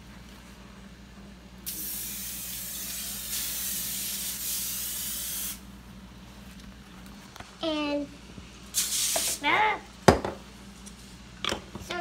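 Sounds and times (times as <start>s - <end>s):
aerosol spray can hissing: 1.7s - 5.6s, 8.8s - 9.4s.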